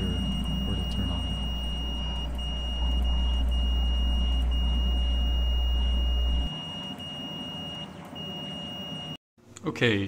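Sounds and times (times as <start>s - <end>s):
low hum: 0.0s - 6.5s
multimeter high beep: 0.0s - 9.2s.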